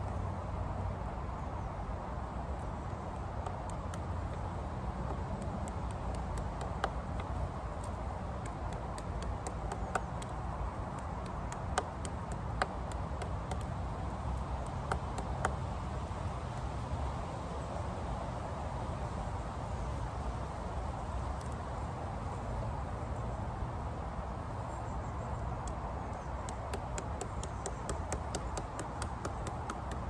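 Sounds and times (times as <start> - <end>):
stick tapping on plant stems: 2.6 - 16.8, 25.5 - 30.0.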